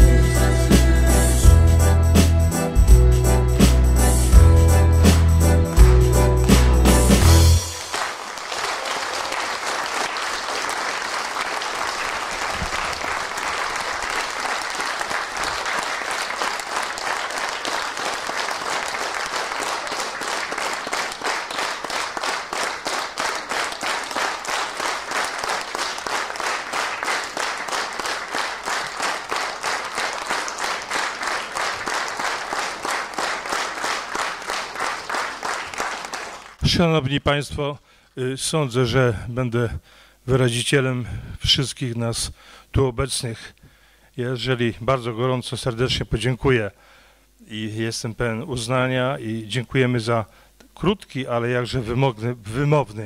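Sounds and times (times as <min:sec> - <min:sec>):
rhythmic clapping in unison: 0:00.0 - 0:36.6
audience applauding: 0:05.7 - 0:36.6.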